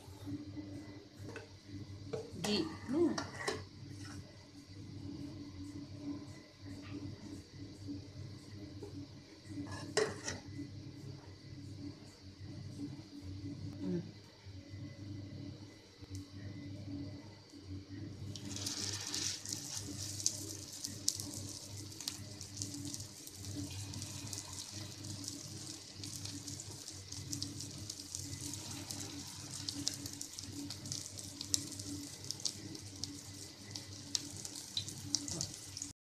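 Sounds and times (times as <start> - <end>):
food sizzling in hot oil: 18.3 - 36.0.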